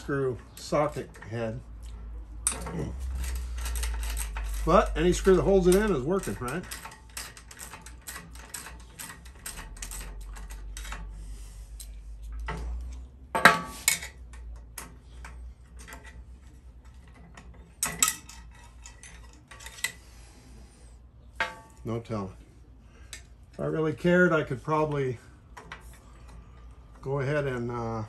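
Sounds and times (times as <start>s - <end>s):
ratchet clicking: 2.4s - 11.9s
tools clinking: 17.0s - 20.0s.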